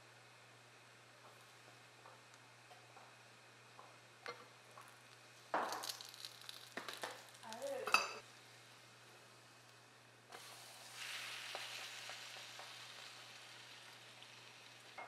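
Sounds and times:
food sizzling in a pan: 4.8 - 15.0.

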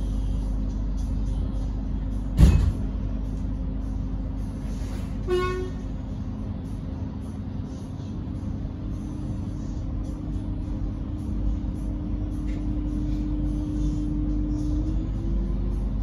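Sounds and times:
electric train humming: 0.0 - 16.0
loud thump: 2.4 - 2.8
train horn toot: 5.2 - 6.0.

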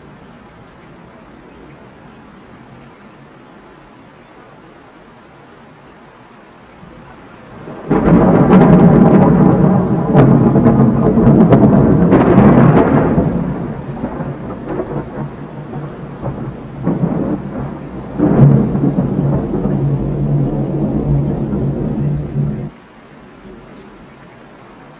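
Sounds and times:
thunder clap rolling: 7.5 - 22.7.

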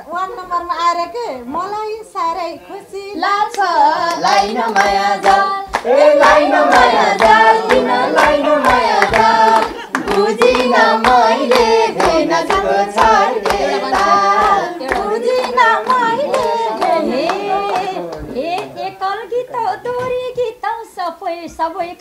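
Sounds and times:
person singing folk melody: 2.4 - 22.0
hand-clapping beat: 3.5 - 18.9.

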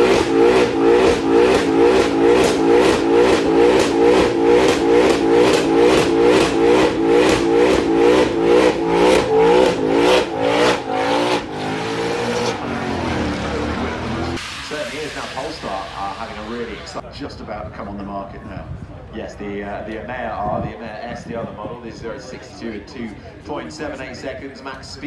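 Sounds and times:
car engine at high revs: 0.0 - 17.0.

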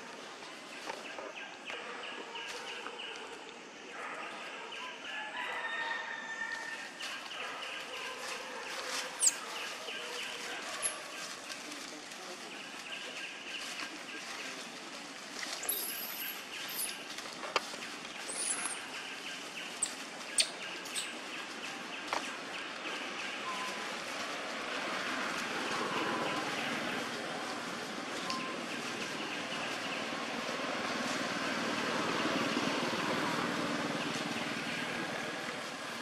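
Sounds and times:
outdoor ambience: 0.0 - 36.0
birds chirping: 15.6 - 24.0.

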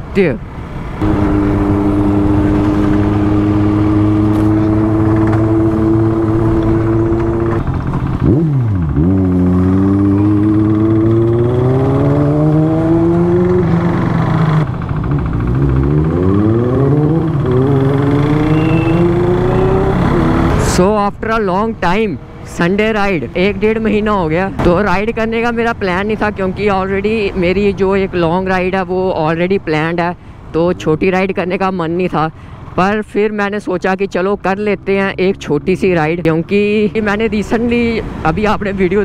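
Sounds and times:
motorcycle engine accelerating: 1.0 - 20.9.

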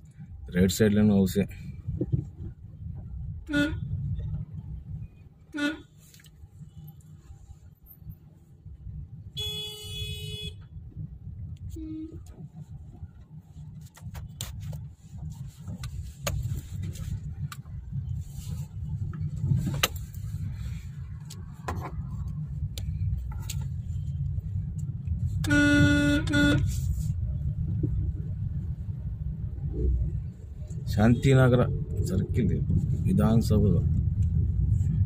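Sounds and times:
vehicle low rumble: 0.0 - 35.0
vehicle horn honking: 3.4 - 3.8, 5.5 - 5.9, 9.4 - 10.7, 11.7 - 12.3, 25.4 - 26.9.

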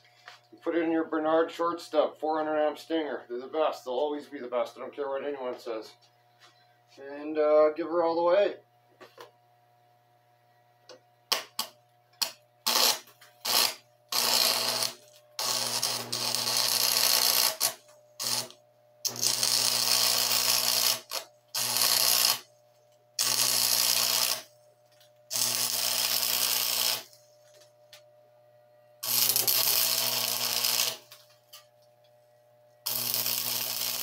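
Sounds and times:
welder low hum: 0.0 - 34.0
welding arc crackling: 11.3 - 22.5, 23.2 - 24.5, 25.3 - 27.6, 29.0 - 31.7, 32.8 - 34.0.

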